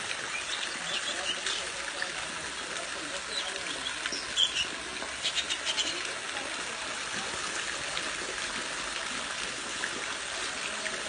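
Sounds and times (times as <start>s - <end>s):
waterfall hissing: 0.0s - 8.0s.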